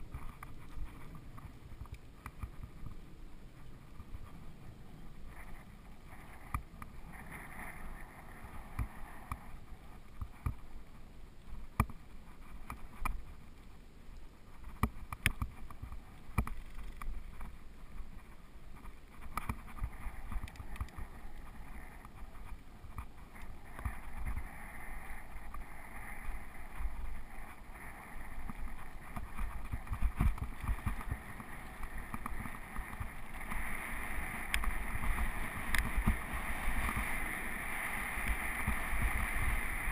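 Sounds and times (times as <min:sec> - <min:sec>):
wind rumble on microphone: 0:00.0 - 0:39.9
bike rattling over bumps: 0:14.6 - 0:39.9
bike tyres crunching on gravel: 0:15.6 - 0:39.9.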